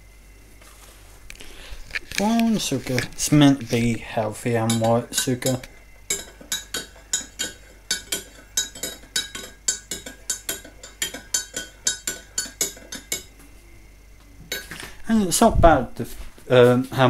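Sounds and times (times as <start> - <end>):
teaspoon clinking in a mug: 4.6 - 13.3.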